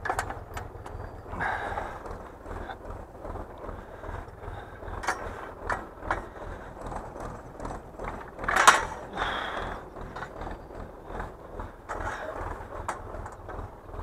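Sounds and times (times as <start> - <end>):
hay implement clattering: 0.0 - 14.0
loud metal clank: 8.5 - 9.1.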